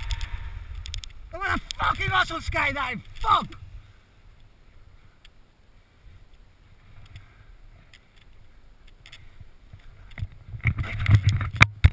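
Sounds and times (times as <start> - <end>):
wind buffeting microphone: 0.0 - 4.0.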